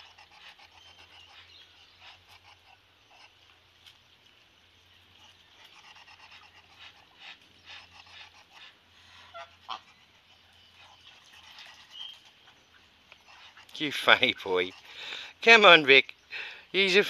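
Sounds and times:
duck breathy hissing huffs: 0.0 - 3.4, 5.6 - 10.2, 14.7 - 15.4.

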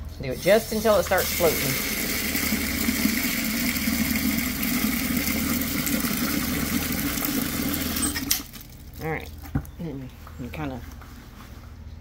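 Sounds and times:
water pouring into plastic bucket: 0.5 - 9.0.

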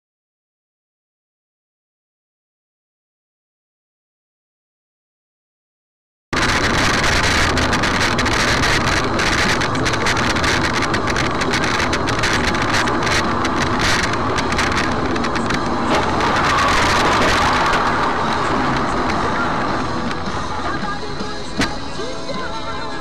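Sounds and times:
car road and engine noise: 6.4 - 23.0.

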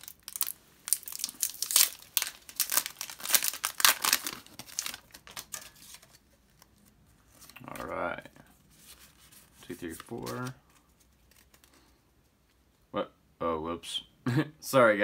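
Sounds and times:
foil wrapper crinkling: 0.0 - 7.9, 8.8 - 11.9.

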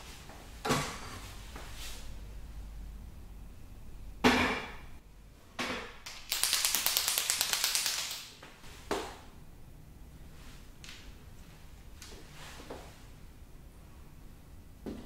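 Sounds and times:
marker mixing ball rattling: 6.1 - 8.3.

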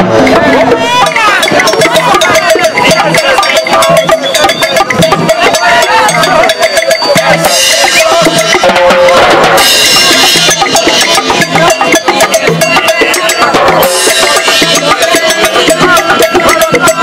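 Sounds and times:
conga drum: 0.0 - 17.0
timbales in a fast rhythm: 0.0 - 17.0.

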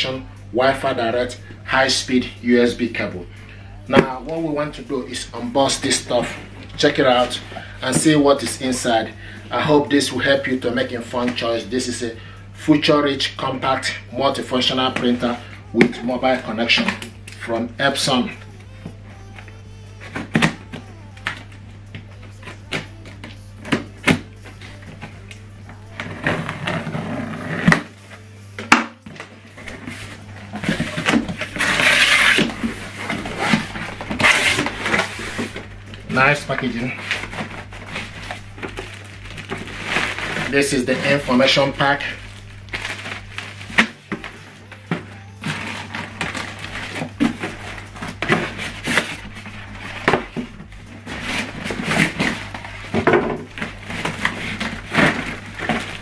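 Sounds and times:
steady low hum: 0.0 - 56.0
cardboard flaps scraping: 29.6 - 44.5, 45.4 - 56.0.

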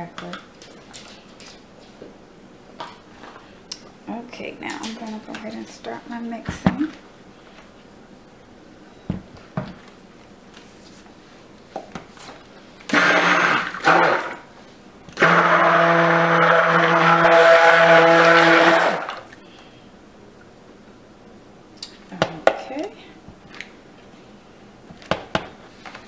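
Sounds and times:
stick blender running: 12.9 - 14.5, 15.1 - 19.2.

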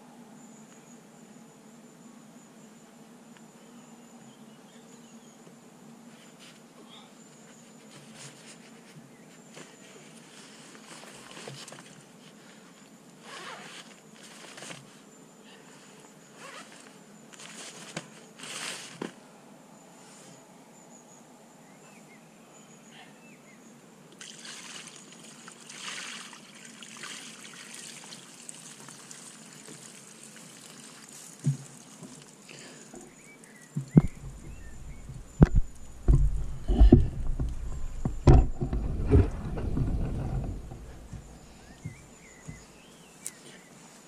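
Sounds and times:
water trickling and dripping: 24.2 - 32.5.

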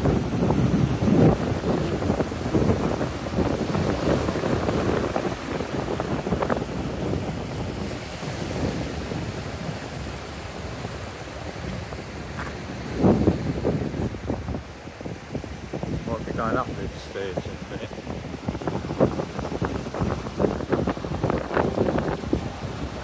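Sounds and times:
waves washing onto pebble beach: 0.0 - 23.0
wind buffeting microphone: 0.0 - 23.0.

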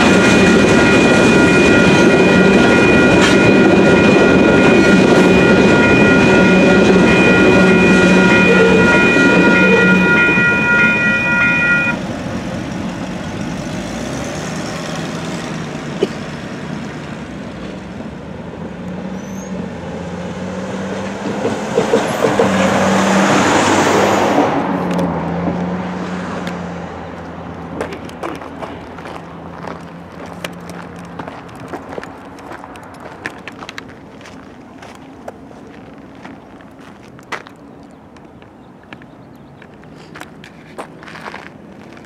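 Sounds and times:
electronic crossing bell ringing: 0.0 - 12.0
truck driving across tracks: 0.0 - 42.0.

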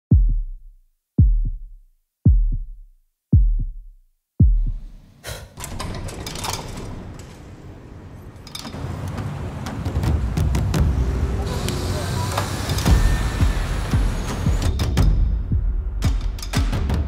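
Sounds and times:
heartbeat thumps: 0.1 - 5.1, 12.9 - 17.0
city street noise: 5.6 - 15.1.

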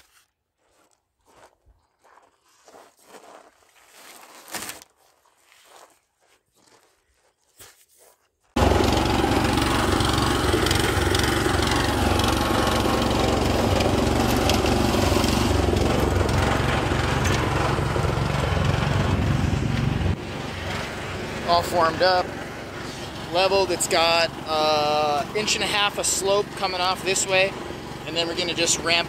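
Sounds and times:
faint crunches on dirt: 0.0 - 8.6
concrete mixer engine running: 8.6 - 29.0.

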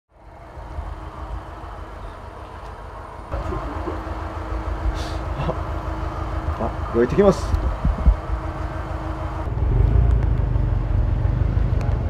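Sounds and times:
car engine idling: 0.1 - 12.0.

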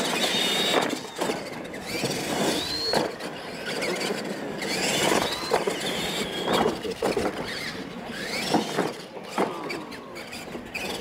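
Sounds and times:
toy truck motors whining: 0.0 - 11.0.

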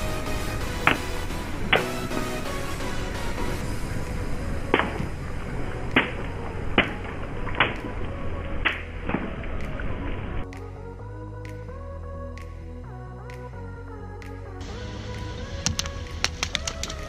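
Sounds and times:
water balloons bursting: 0.0 - 10.2
steady low rumble: 0.0 - 17.0.

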